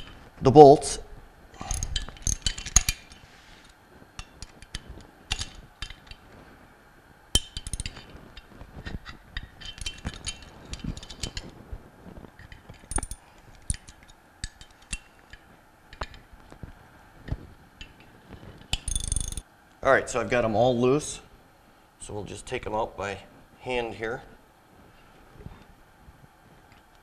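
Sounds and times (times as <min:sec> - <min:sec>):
wrench clinking on metal: 0:01.6 - 0:03.2, 0:07.4 - 0:11.5, 0:12.4 - 0:16.2, 0:18.7 - 0:19.4.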